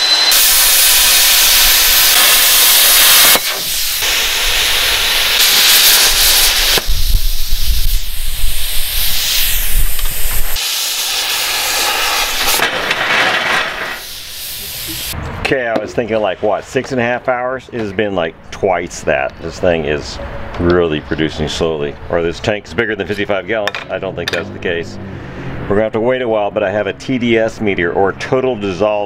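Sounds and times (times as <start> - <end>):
cutting torch on steel: 0.0 - 15.2
loud steady hissing: 0.0 - 15.2.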